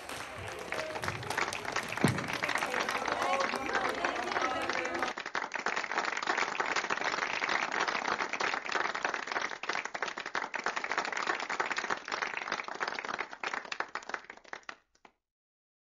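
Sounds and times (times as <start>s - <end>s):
group of people applauding: 0.0s - 15.2s.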